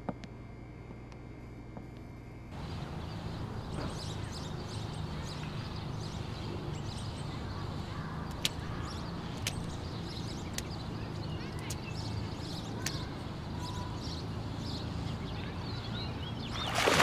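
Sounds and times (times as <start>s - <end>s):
steady low hum: 0.0s - 17.0s
sharp clicks: 8.3s - 8.7s, 9.3s - 9.8s, 10.4s - 12.1s.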